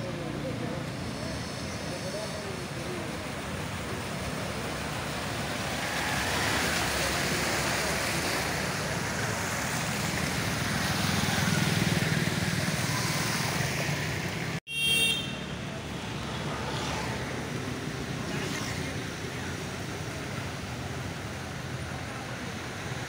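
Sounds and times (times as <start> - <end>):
motorbike engines running: 0.0 - 14.6
tyres swishing through water: 0.0 - 14.6, 15.5 - 23.0
short high horn toot: 14.7 - 15.4.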